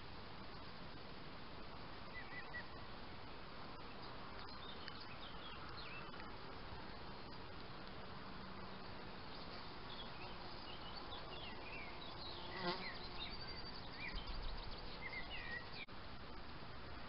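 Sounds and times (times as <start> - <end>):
insect buzzing: 8.4 - 13.4.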